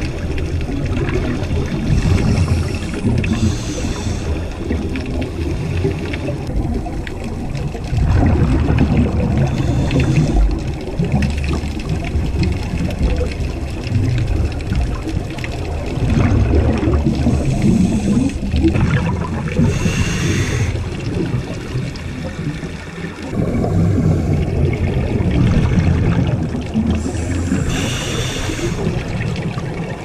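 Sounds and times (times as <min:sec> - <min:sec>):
muffled exhaled bubbles underwater: 0:00.0 - 0:30.0
regulator hiss: 0:19.7 - 0:20.8, 0:27.0 - 0:29.0.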